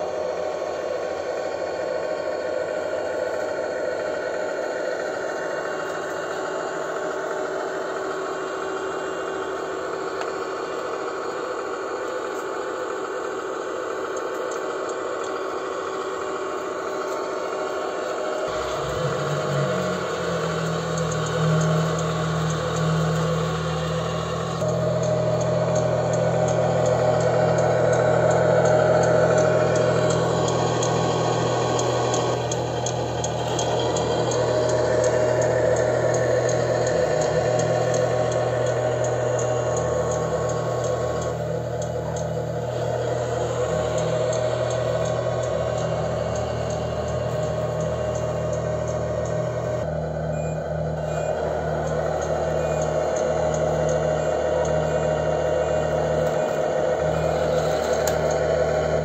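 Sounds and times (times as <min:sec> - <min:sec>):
diesel truck engine through speaker: 0:00.0 - 0:59.0
low mechanical hum: 0:00.0 - 0:59.0
light regular ticking: 0:13.8 - 0:59.0.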